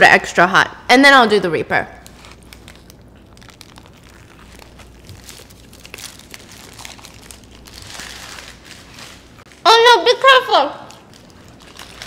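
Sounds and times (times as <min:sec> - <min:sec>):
paper wrapper crinkling: 0:02.0 - 0:09.6, 0:10.8 - 0:12.0
biting and chewing crispy food: 0:02.1 - 0:09.4, 0:10.8 - 0:12.0.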